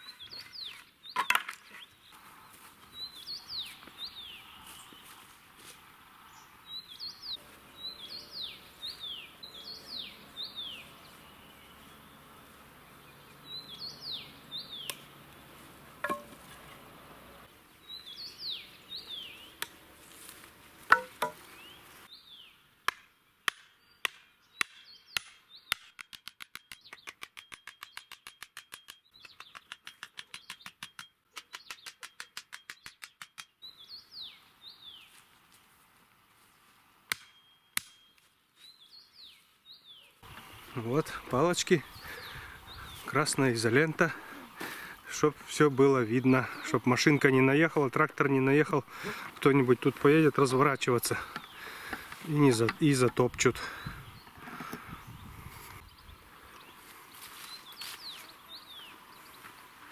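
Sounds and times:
small birds chirping: 0.0s - 20.4s, 21.0s - 35.6s, 36.4s - 59.9s
axe knocking metal stake: 16.0s - 16.4s, 20.9s - 21.4s.

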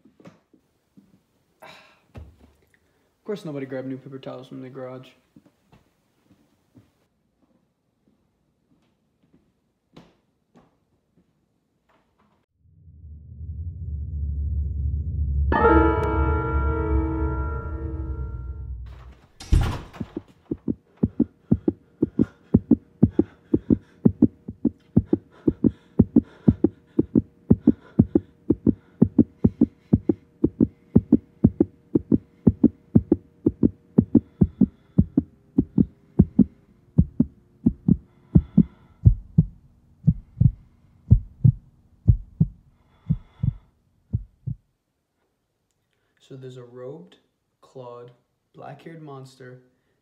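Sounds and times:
held tone stepping down: 12.7s - 19.0s, 19.6s - 43.6s
heartbeat thumps: 19.6s - 44.7s.

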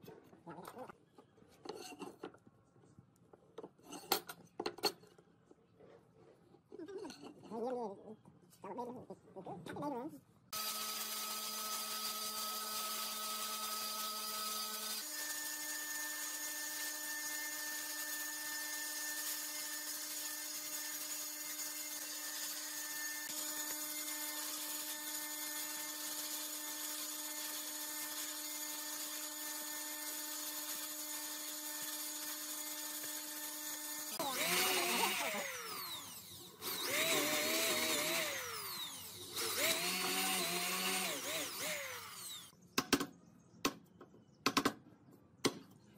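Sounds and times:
bandsaw cutting wood: 10.6s - 42.5s
electric drill boring into wood: 10.6s - 42.5s.

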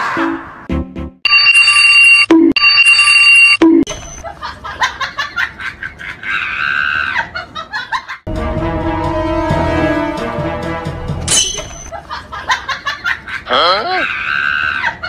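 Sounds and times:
music: 0.2s - 1.2s, 8.3s - 11.9s
alarm clock ringing: 1.3s - 3.6s.

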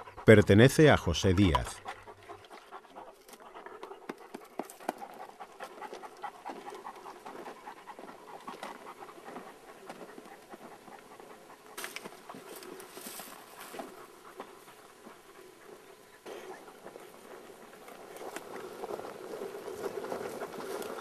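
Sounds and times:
dog panting: 0.0s - 21.0s
footsteps crunching on dry soil: 5.7s - 21.0s.

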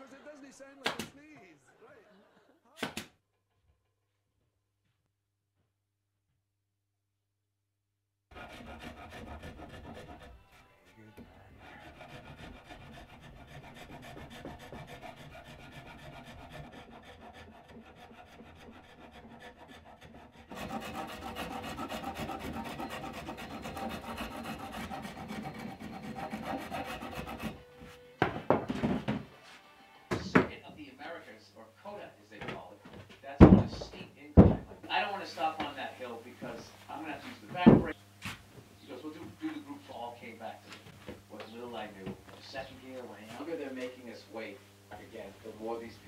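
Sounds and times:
hand rasp scraping wood: 8.3s - 27.7s.

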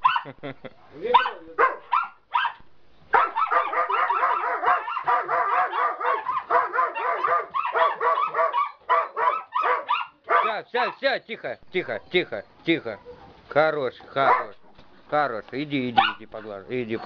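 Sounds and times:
dogs barking and yelping: 0.0s - 0.4s, 1.1s - 11.0s, 14.2s - 14.8s, 16.0s - 17.0s.

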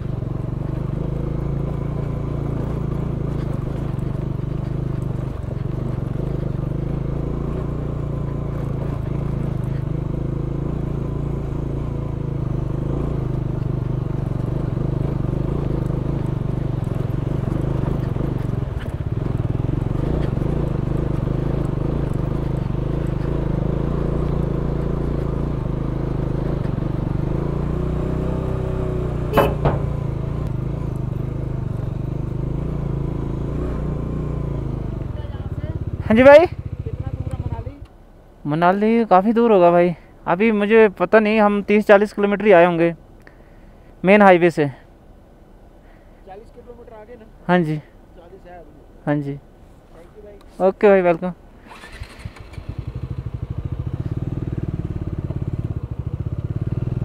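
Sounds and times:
motorcycle engine running: 0.0s - 38.1s, 50.9s - 57.0s.

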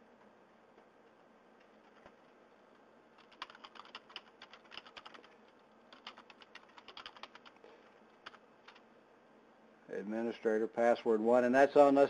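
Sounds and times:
keyboard typing: 3.2s - 8.8s.

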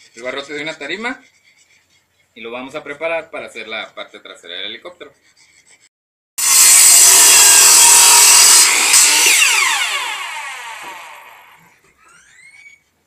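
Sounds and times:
saw motor winding down: 6.4s - 11.6s
miter saw cutting wood: 6.4s - 11.7s.

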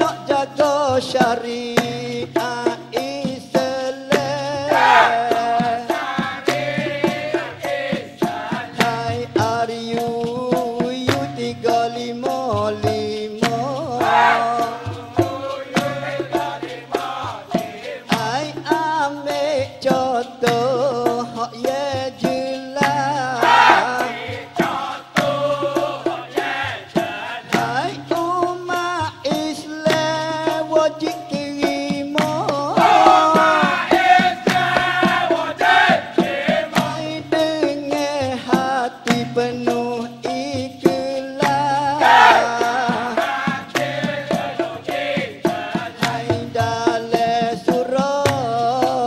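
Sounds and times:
male chorus singing: 0.0s - 10.4s, 11.0s - 20.6s, 21.6s - 30.6s, 31.6s - 38.8s, 40.8s - 49.0s
percussion steady beat: 0.0s - 49.0s
chorus chanting: 4.6s - 9.0s, 14.0s - 18.2s, 23.2s - 27.7s, 32.7s - 37.0s, 42.0s - 46.4s
people clapping in unison: 4.7s - 5.3s, 22.8s - 27.7s, 32.2s - 36.9s, 41.4s - 46.4s
person singing solo: 32.4s - 34.0s.

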